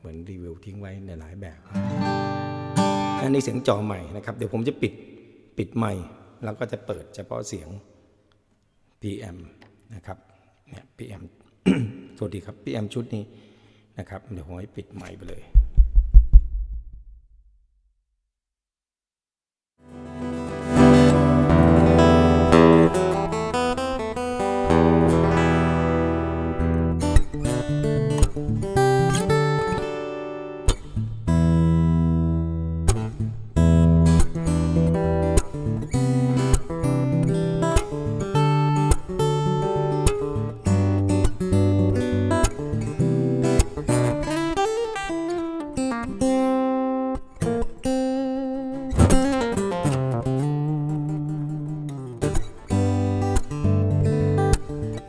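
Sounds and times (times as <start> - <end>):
acoustic guitar chords and notes: 1.7 - 4.0, 19.8 - 55.0.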